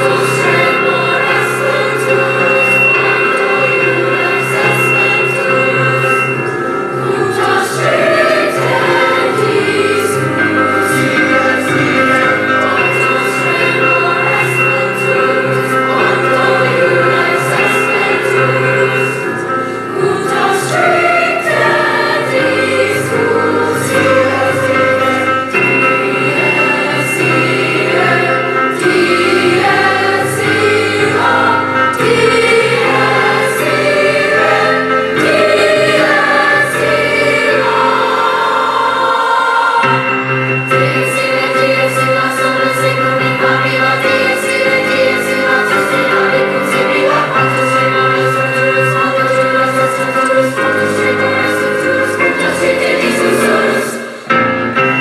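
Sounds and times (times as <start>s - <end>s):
grand piano: 0.0s - 55.0s
teenage chorus singing: 0.0s - 55.0s.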